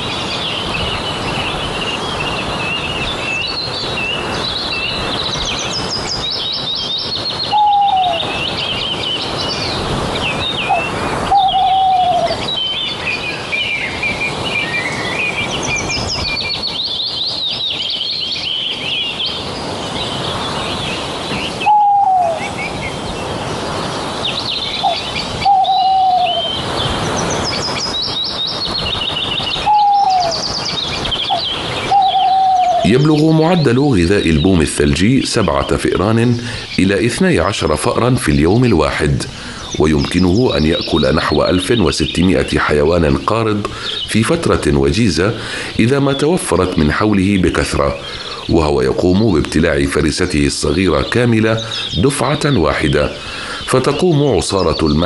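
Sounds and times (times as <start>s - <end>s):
small birds chirping: 0.0s - 55.0s
bird call falling in pitch: 7.4s - 8.3s, 10.6s - 12.5s, 21.3s - 22.6s, 24.8s - 26.6s, 29.2s - 33.5s.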